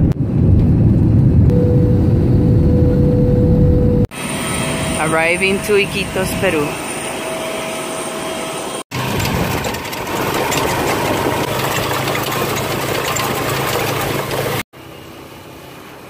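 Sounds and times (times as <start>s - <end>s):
small motorcycle engine running: 7.0s - 16.0s.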